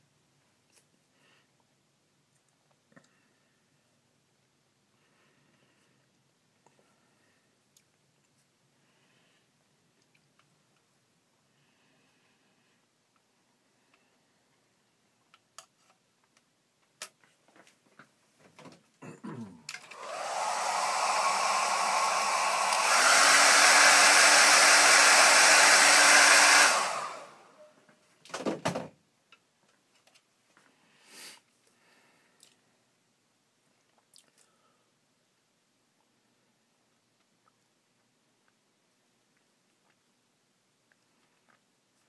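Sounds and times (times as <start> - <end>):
hair dryer running: 19.8 - 27.6.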